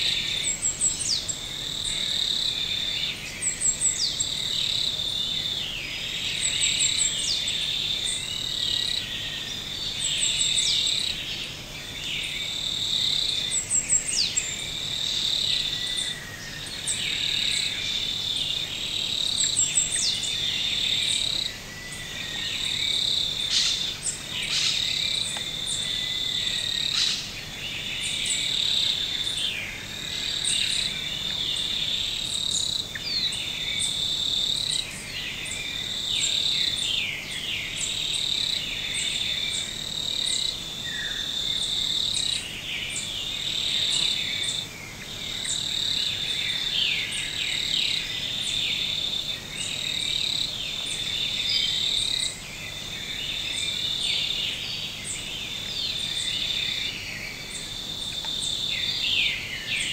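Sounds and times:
insect chorus trilling: 0:00.0 - 0:59.9.

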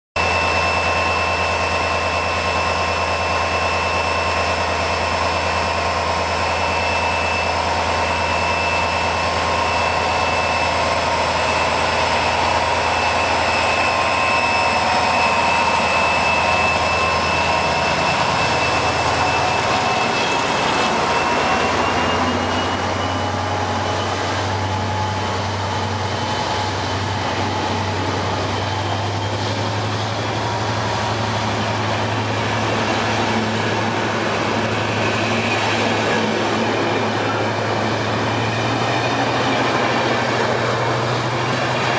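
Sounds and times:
diesel locomotive drone and whine: 0:00.2 - 0:41.9.

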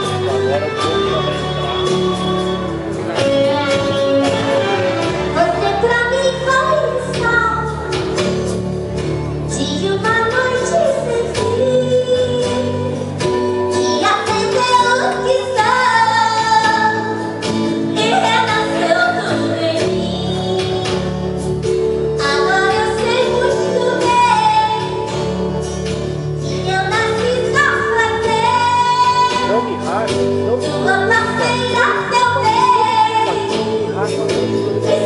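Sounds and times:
instrumental accompaniment: 0:00.0 - 0:35.0
woman singing: 0:01.5 - 0:03.0, 0:05.1 - 0:08.2, 0:09.5 - 0:25.6, 0:26.4 - 0:35.0.

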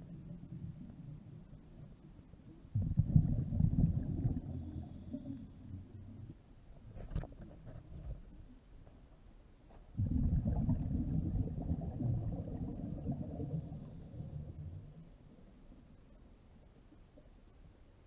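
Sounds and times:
underwater breath bubbling: 0:02.8 - 0:06.0, 0:10.0 - 0:15.0.

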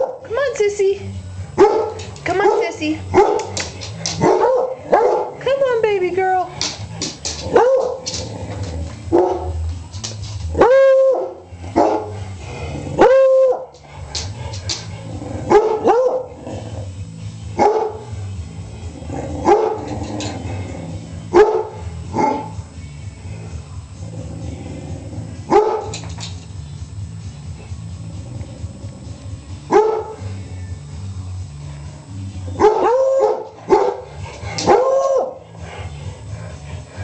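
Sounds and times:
dogs barking: 0:00.0 - 0:00.3, 0:01.5 - 0:05.4, 0:06.6 - 0:09.6, 0:10.5 - 0:12.3, 0:12.9 - 0:16.4, 0:17.6 - 0:18.2, 0:19.4 - 0:19.9, 0:21.3 - 0:22.6, 0:25.4 - 0:26.1, 0:29.7 - 0:30.3, 0:32.5 - 0:37.0.

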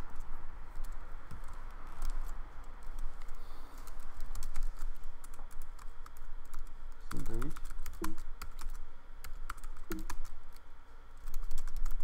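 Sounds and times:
laptop keyboard typing: 0:00.0 - 0:10.6, 0:11.2 - 0:12.0.

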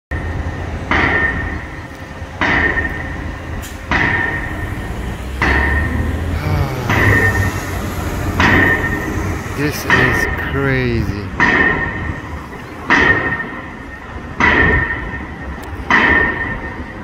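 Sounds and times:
pile driver metallic blows: 0:02.4 - 0:06.0, 0:06.8 - 0:10.5
steady low rumble: 0:04.2 - 0:12.8.

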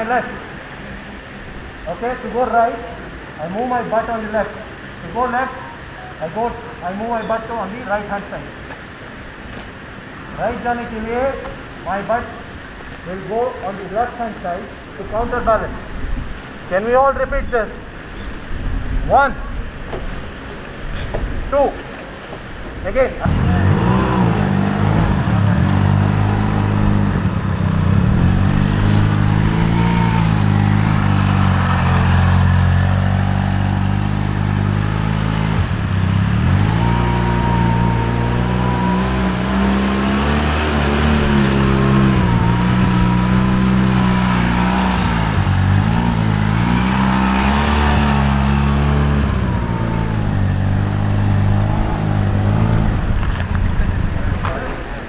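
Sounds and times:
motorcycle engine revving: 0:22.9 - 0:55.0.

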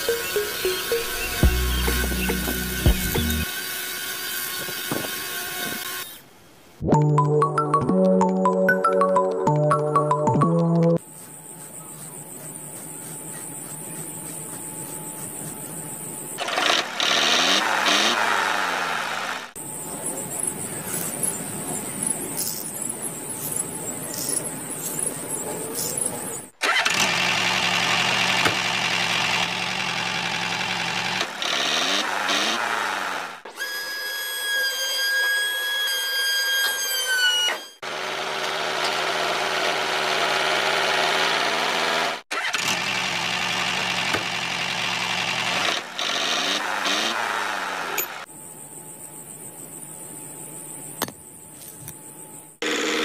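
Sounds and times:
high whine: 0:00.0 - 0:03.5
model tractor engines running: 0:16.4 - 0:33.4, 0:38.0 - 0:48.3.

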